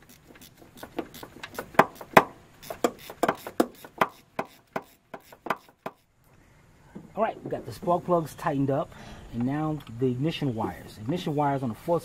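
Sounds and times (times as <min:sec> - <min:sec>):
ratchet wrench clicking: 0:00.0 - 0:06.1.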